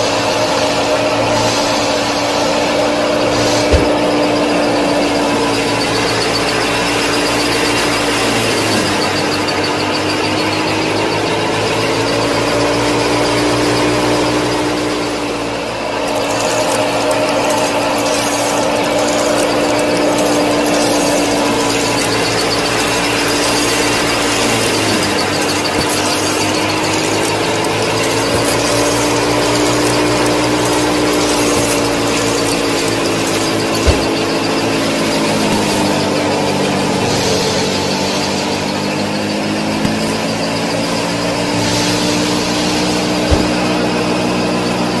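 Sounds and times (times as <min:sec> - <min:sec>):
small electric motor whining: 0:00.0 - 0:45.0.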